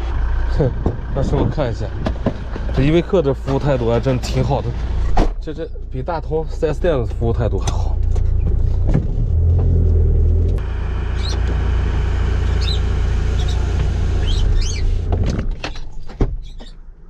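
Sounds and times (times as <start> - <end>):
motorhome engine running: 0.0 - 15.8.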